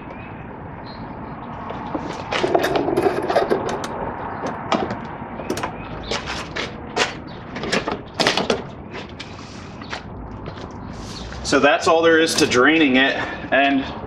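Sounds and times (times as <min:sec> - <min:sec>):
push mower clunking and rattling: 0:01.9 - 0:05.8.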